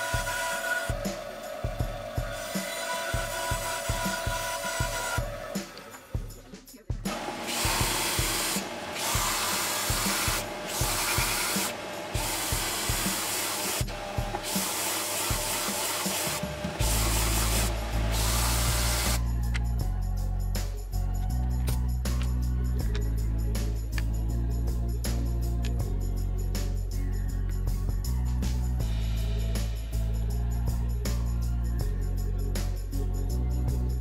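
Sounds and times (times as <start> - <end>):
belt sander grinding wood: 0.0 - 6.2, 7.1 - 19.2
background music with steady beat: 0.0 - 34.0.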